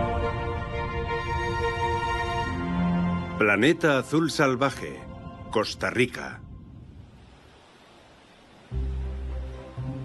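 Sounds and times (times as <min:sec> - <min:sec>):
soundtrack music with held notes: 0:00.0 - 0:05.6, 0:08.7 - 0:10.0.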